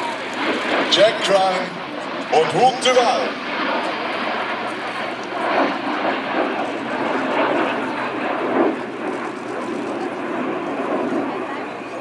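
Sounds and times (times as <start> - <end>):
jet aircraft rushing noise: 0.0 - 11.9.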